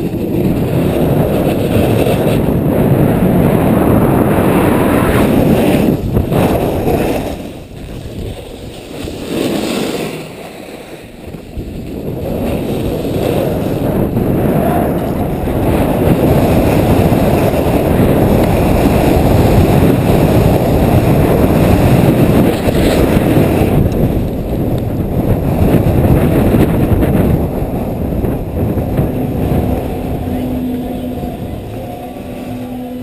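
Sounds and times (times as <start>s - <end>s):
snowboard sliding over snow: 0.0s - 33.0s
wind buffeting microphone: 0.0s - 33.0s.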